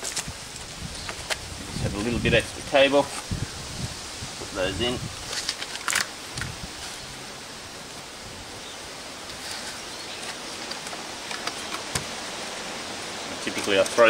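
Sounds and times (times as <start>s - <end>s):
outdoor background hiss: 0.0s - 14.0s
cable clicks and rustles: 5.2s - 6.9s, 9.3s - 12.1s, 13.4s - 14.0s.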